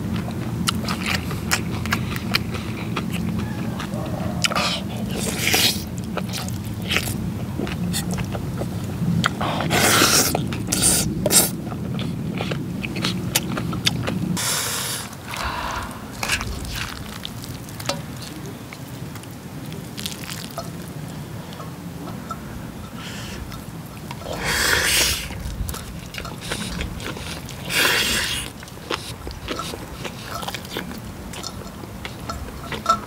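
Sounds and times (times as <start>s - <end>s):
slurping and chewing: 0.0s - 33.0s.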